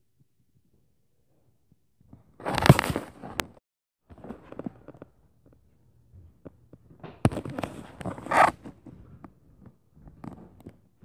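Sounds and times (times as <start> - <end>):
scraping rub: 7.6 - 8.8.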